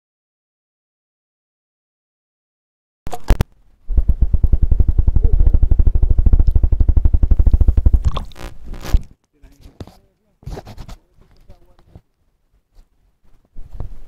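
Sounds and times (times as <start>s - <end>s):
underwater stream rumbling: 3.9s - 8.7s
water splashing: 7.5s - 8.7s.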